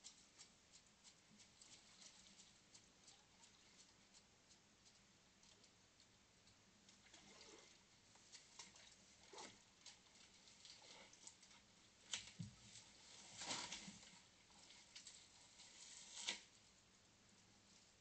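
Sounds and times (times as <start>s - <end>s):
bears rustling among plants: 6.8s - 16.8s.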